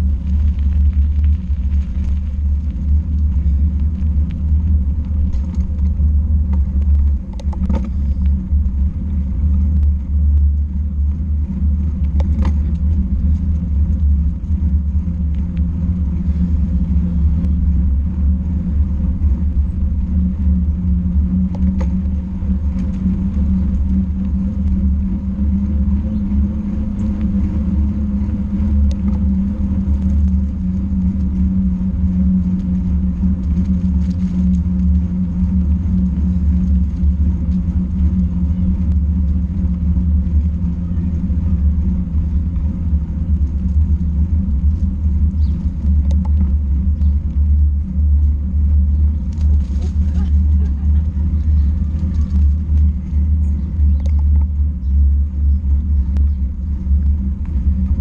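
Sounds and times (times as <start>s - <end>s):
constant low hum: 0.0s - 58.0s
vehicle rumbling on paved path: 0.0s - 58.0s
wind buffeting microphone: 0.0s - 58.0s
faint clicks and knocks: 5.0s - 8.7s.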